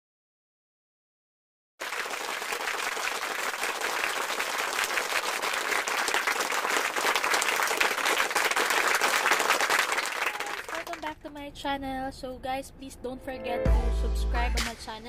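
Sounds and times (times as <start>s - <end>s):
applause: 1.8s - 11.4s.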